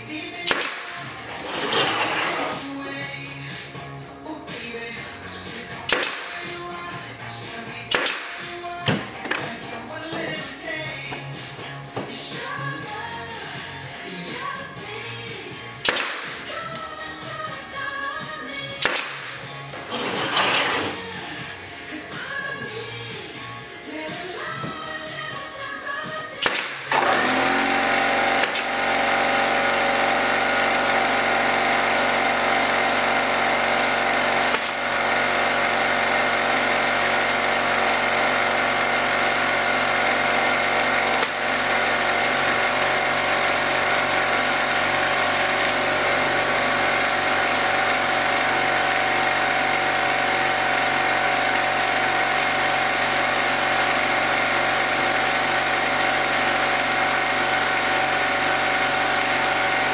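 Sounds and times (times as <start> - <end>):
pneumatic nailer clacks: 0.0 - 2.8, 5.5 - 12.8, 15.8 - 17.0, 18.7 - 21.6, 26.3 - 59.9
air compressor motor running: 0.0 - 59.9.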